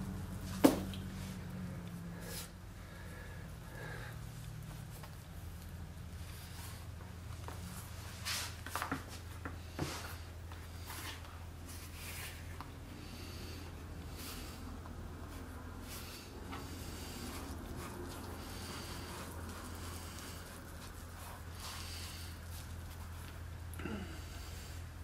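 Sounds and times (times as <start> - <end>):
steady low hum: 0.0 - 25.0
sponge rubbing leather: 14.1 - 23.6.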